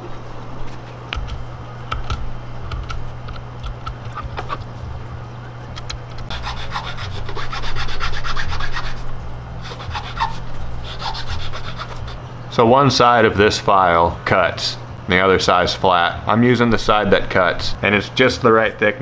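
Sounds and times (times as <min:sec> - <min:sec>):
file rasping on wood: 0:06.3 - 0:09.0, 0:09.6 - 0:12.2
knife blade scraping wood: 0:06.3 - 0:09.0, 0:09.6 - 0:12.2.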